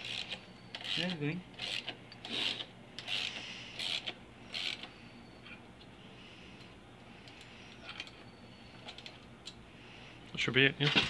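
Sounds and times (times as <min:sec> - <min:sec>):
gear puller screw creaking: 0:00.0 - 0:04.9.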